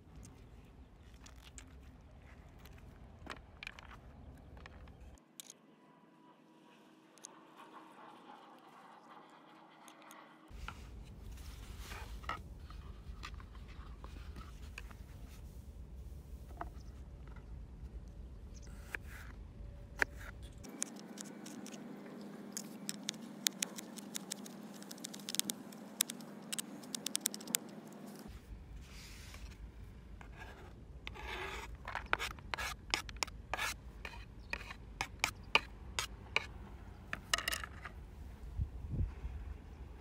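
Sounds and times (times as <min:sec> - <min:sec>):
knife blade scraping board: 0:30.2 - 0:35.7.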